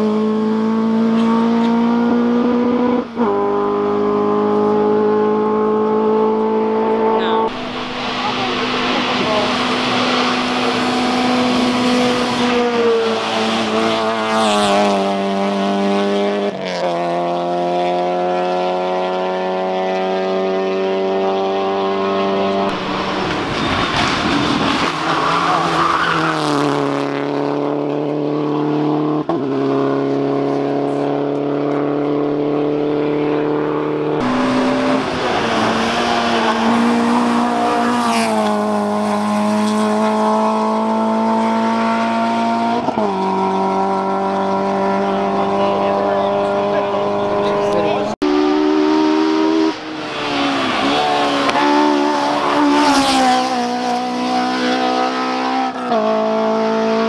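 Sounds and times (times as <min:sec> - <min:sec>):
rally car engines at full throttle: 0:00.0 - 0:57.0
rally car passing close by: 0:00.0 - 0:57.0.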